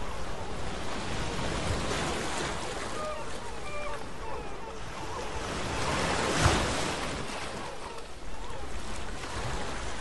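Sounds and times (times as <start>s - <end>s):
sea surf: 0.0s - 10.0s
seagull calls: 2.8s - 6.4s, 7.4s - 9.0s.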